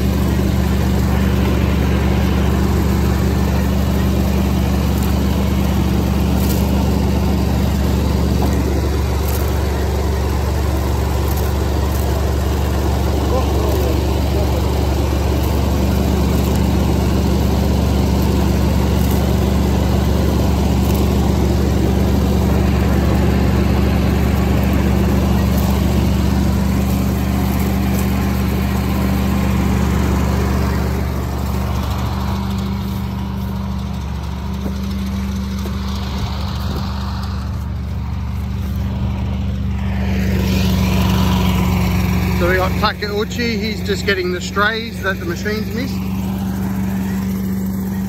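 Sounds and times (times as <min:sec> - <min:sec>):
combine harvester running: 0:00.0 - 0:48.0.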